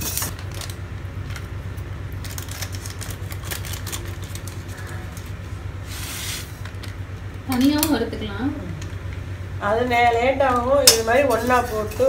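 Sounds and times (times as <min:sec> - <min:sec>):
seeds crackling while roasting: 0:00.0 - 0:07.9.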